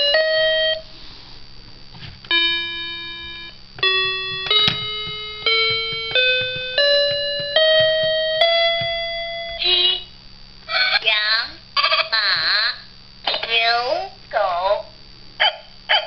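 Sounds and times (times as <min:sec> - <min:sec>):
electronic toy piano notes: 0:00.0 - 0:00.9, 0:02.3 - 0:10.1.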